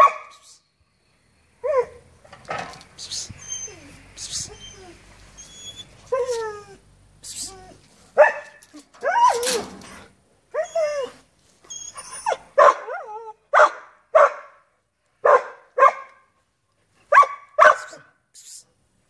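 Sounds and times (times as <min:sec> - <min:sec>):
dog barking high: 0:00.0 - 0:00.4, 0:08.2 - 0:08.6, 0:12.5 - 0:14.6, 0:15.2 - 0:16.2, 0:17.1 - 0:18.1.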